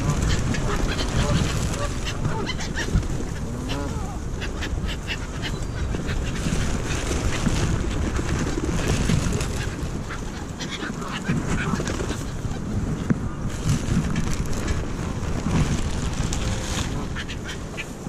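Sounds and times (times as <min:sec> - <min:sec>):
geese honking: 0:00.0 - 0:06.9
wind rumbling on microphone: 0:00.0 - 0:18.0.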